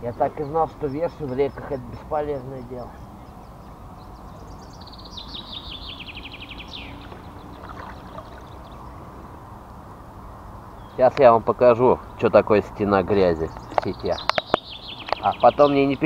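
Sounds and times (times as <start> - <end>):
songbird trill: 0.0 - 16.0
water from rowing: 6.7 - 9.0.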